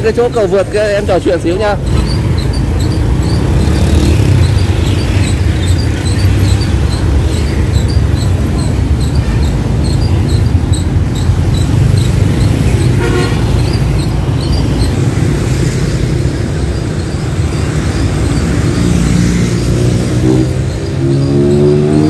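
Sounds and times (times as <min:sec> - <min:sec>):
motorbike engines passing: 0:00.0 - 0:22.0
road traffic: 0:00.0 - 0:22.0
vehicle engine speeding up: 0:01.8 - 0:22.0
car horn toot: 0:12.9 - 0:13.6.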